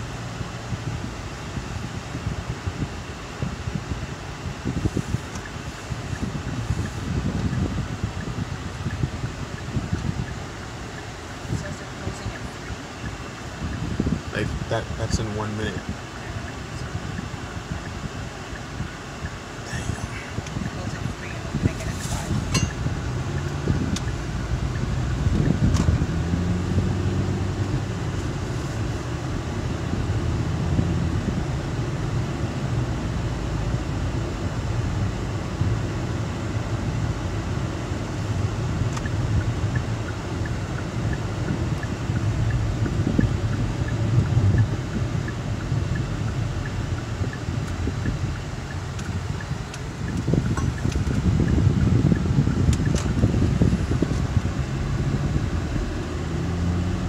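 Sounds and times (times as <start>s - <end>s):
car road noise and engine hum: 0.0s - 57.0s
faint regular ticking: 38.9s - 52.9s.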